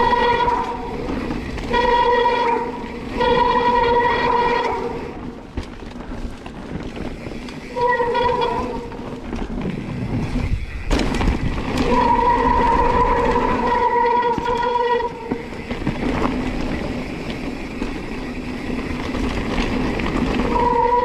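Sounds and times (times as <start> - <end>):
bike tyres rattling on dirt: 0.0 - 21.0
loud clatter: 7.8 - 14.9.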